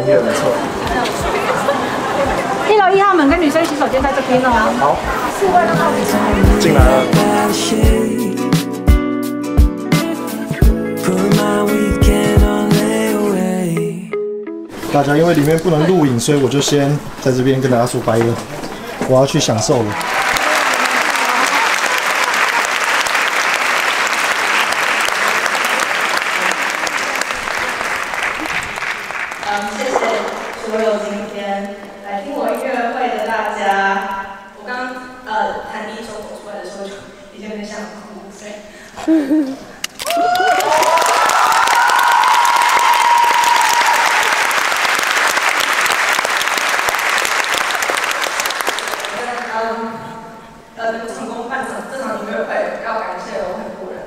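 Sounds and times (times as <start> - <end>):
audience applauding: 19.7 - 30.9, 40.0 - 49.6
drawn-out cheer: 19.9 - 27.3, 40.0 - 46.5.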